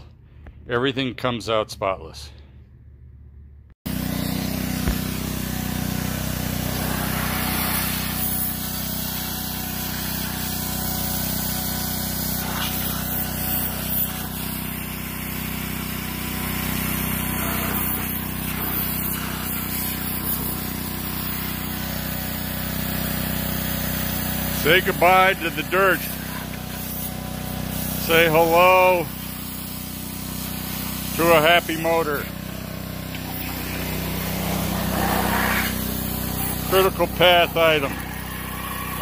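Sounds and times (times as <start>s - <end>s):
pressure washer spraying water: 3.9s - 39.0s
washer motor humming: 30.2s - 39.0s.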